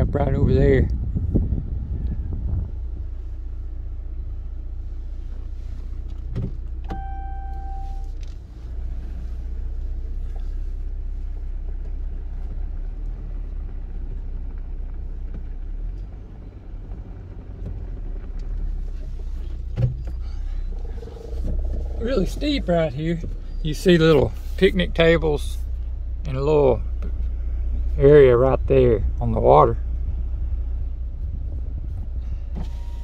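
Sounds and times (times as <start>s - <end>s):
car engine and road rumble: 0.0s - 33.0s
short beep tone: 6.9s - 8.2s, 32.6s - 33.0s.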